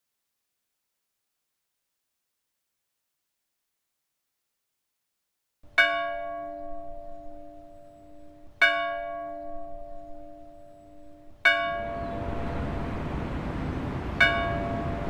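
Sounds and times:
large bell ringing: 0:05.8 - 0:15.0
city traffic noise: 0:11.6 - 0:15.0.

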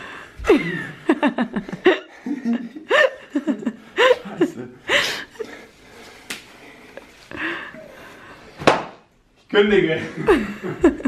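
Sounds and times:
people laughing hard: 0:00.5 - 0:05.7, 0:10.0 - 0:11.0.

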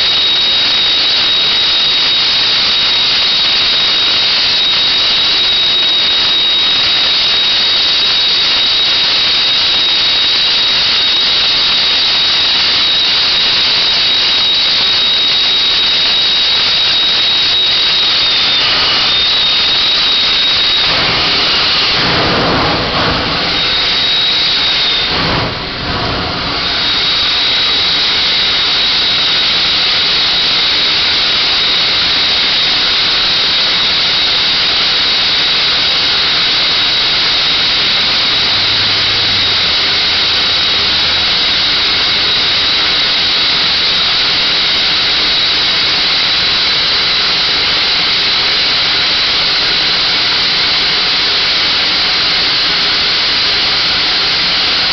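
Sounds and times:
thin high whistle: 0:00.0 - 0:22.2, 0:23.4 - 0:25.6, 0:26.5 - 0:34.3
gas hissing under pressure: 0:00.0 - 0:54.9.

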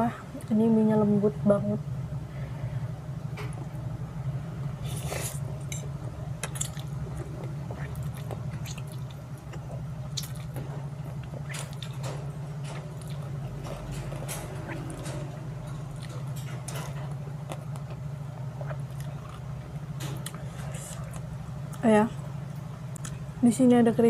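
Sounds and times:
chewing: 0:04.8 - 0:22.3.

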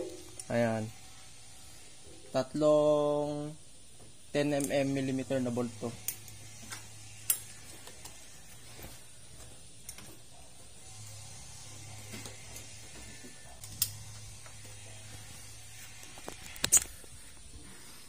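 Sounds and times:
wrench clicking on bolts: 0:04.5 - 0:04.9.

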